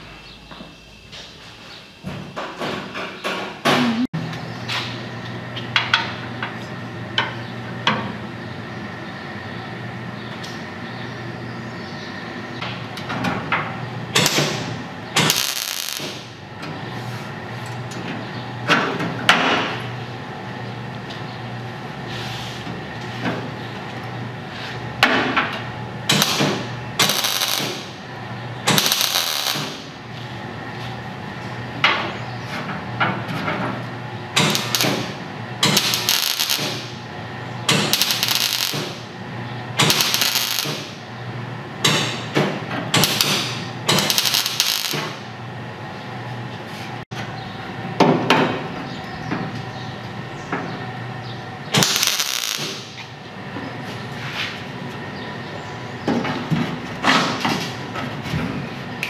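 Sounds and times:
welder arc bursts: 14.2 - 16.3, 26.1 - 28.0, 28.6 - 30.0, 34.4 - 37.0, 37.7 - 39.1, 39.8 - 41.0, 43.0 - 45.3, 51.8 - 53.0.

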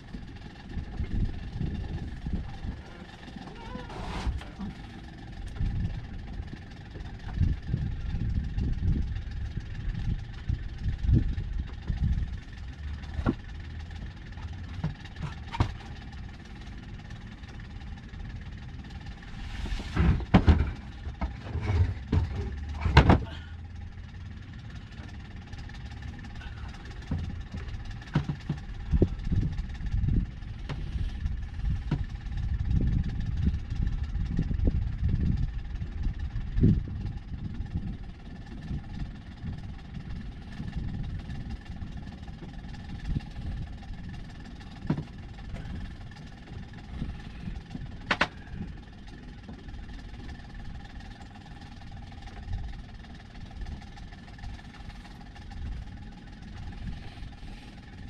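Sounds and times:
wind buffeting microphone: 0.0 - 13.5, 26.4 - 48.9
boat engine running: 0.0 - 58.0.

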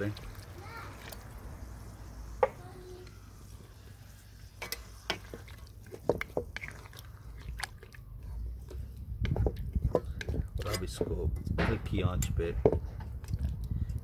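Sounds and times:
wooden spatula stirring sauce: 3.6 - 11.2
wood scraping metal pan: 8.7 - 13.0.

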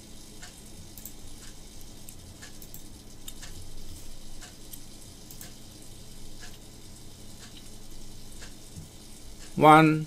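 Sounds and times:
steady low hum: 0.0 - 10.0
computer mouse clicking: 0.4 - 3.6, 4.4 - 5.6.

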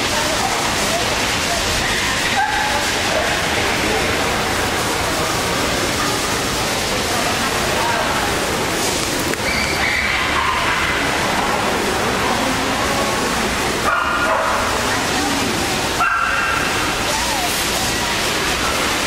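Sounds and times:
hubbub of people talking: 0.0 - 19.0
dog barking: 13.8 - 14.8, 16.0 - 16.8.

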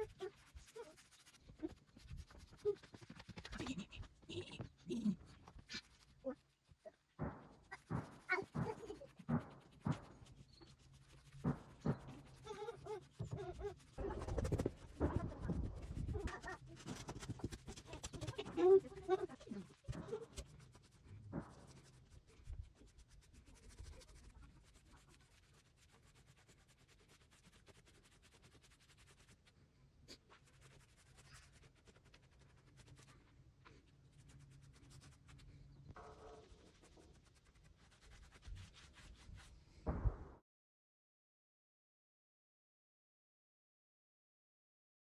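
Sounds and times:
cloth rubbing on wood: 0.0 - 39.6.

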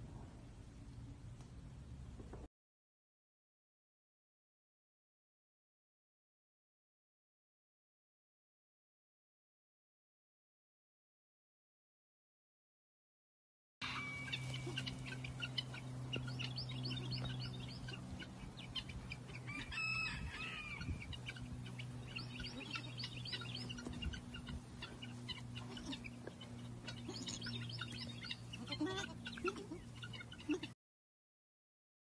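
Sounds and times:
low steady hum: 0.0 - 2.5, 13.8 - 30.8
poultry clucking: 13.8 - 30.8.

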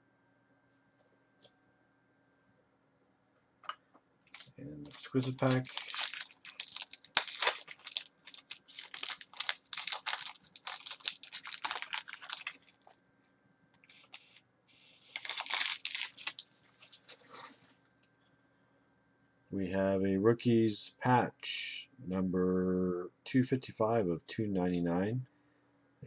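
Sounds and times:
wrapper rustling and crackling: 4.3 - 13.0, 13.9 - 17.7.

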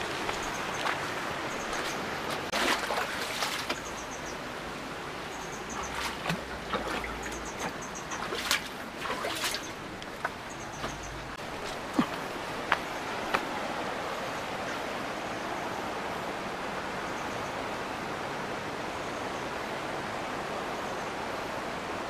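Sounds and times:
mountain stream rushing: 0.0 - 22.0
footsteps on gravel and rock: 0.1 - 2.6, 7.6 - 13.5.

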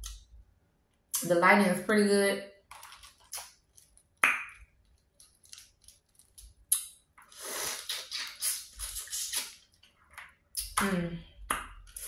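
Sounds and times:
wet eating smacks and sucking: 6.7 - 9.8.

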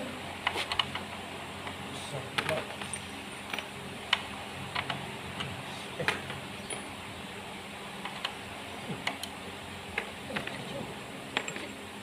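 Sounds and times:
steady low hum: 0.0 - 12.0
metal tools clinking: 6.6 - 7.0, 11.4 - 11.8.

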